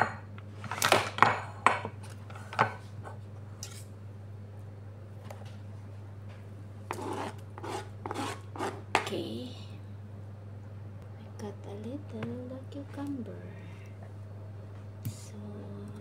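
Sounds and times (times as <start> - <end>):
low hum: 1.2 - 16.0
knife scraping cutting board: 6.9 - 9.1.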